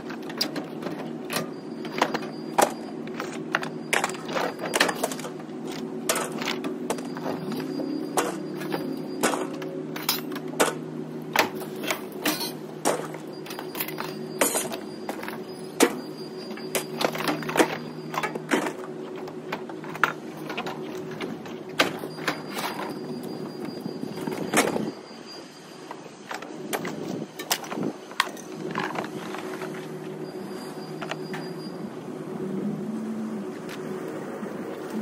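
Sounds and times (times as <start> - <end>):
scrap metal clanging: 11.4 - 18.9.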